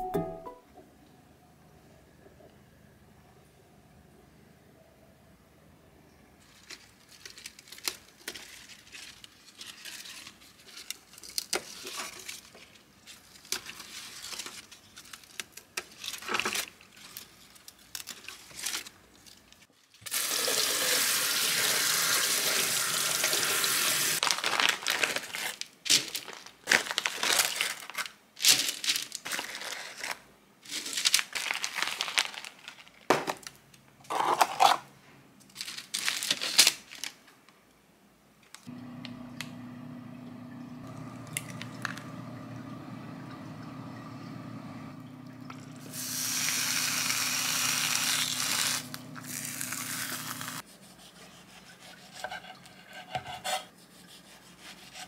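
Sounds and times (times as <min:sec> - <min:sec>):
lettuce leaves rustling and tearing: 0:06.4 - 0:19.5, 0:24.2 - 0:33.1, 0:35.6 - 0:37.2, 0:45.9 - 0:50.6
paper crinkling: 0:06.4 - 0:20.0, 0:24.2 - 0:33.5, 0:35.5 - 0:37.2, 0:45.9 - 0:50.6
tap water running into sink: 0:20.1 - 0:24.2, 0:38.7 - 0:47.8.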